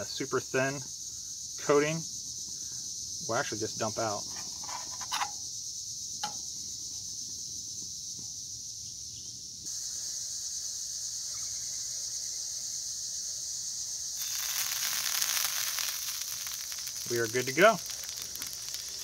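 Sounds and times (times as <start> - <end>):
lard sizzling in a skillet: 13.7 - 19.0.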